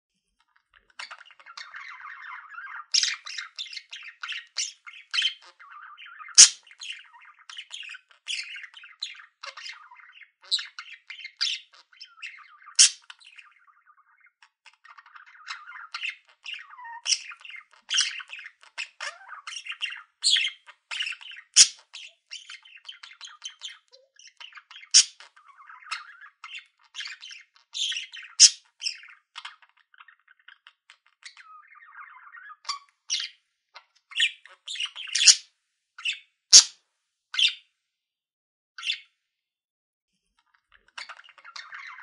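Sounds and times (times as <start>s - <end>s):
budgerigar warbling: 1.0s - 7.0s, 11.4s - 13.1s, 18.9s - 21.8s, 24.8s - 26.3s, 27.8s - 28.6s, 34.2s - 35.4s, 36.1s - 36.7s
loud bird squawks: 1.0s - 8.7s, 9.4s - 13.1s, 15.4s - 22.6s, 24.8s - 29.0s, 34.2s - 35.4s, 36.0s - 36.8s.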